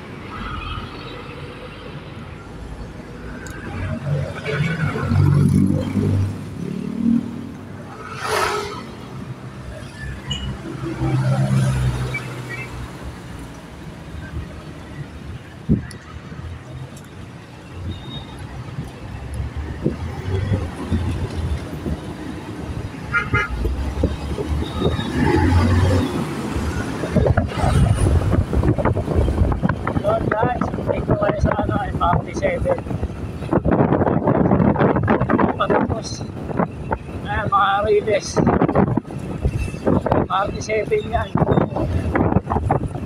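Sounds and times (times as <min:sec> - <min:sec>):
city road traffic rumble: 0:00.0 - 0:43.0
motorcycle engines: 0:02.3 - 0:43.0
vehicle horn toot: 0:23.1 - 0:23.6.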